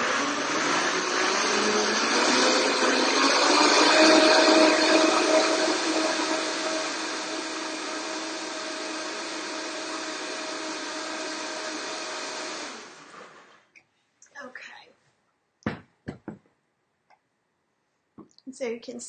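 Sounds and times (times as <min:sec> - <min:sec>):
blender motor winding down: 0:00.0 - 0:13.7
blender running: 0:00.0 - 0:13.7.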